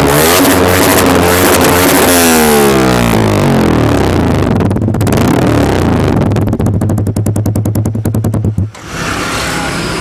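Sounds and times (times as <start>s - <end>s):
motorcycle engine idling lumpily: 3.2s - 8.8s.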